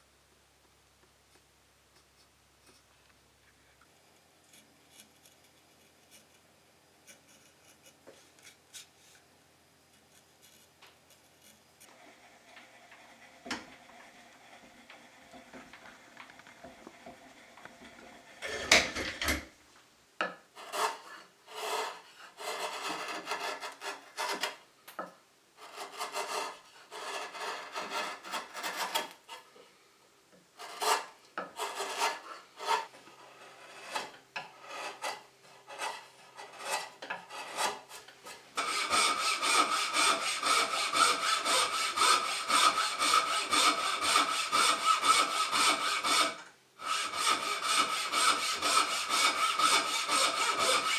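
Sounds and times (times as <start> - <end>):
chisel scraping wood: 4.5 - 6.4, 7.0 - 9.2, 9.9 - 19.4, 20.6 - 24.6, 25.6 - 29.5, 30.6 - 50.9
bow saw cutting wood: 20.6 - 24.6, 25.6 - 29.5, 30.6 - 50.9.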